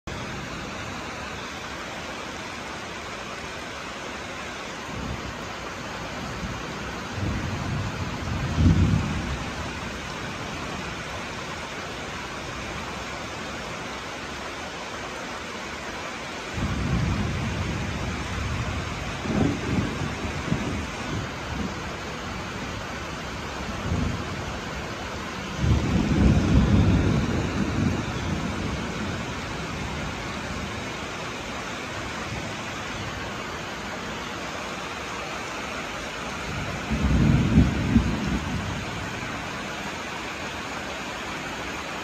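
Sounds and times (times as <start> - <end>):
steady rain: 0.0 - 42.0
thunder rumbling: 4.9 - 11.8, 16.6 - 34.0, 35.0 - 39.9.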